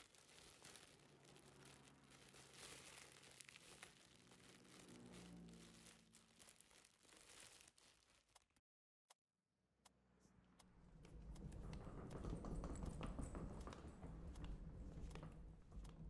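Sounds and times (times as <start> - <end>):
plastic gloves crinkling: 0.0 - 8.6.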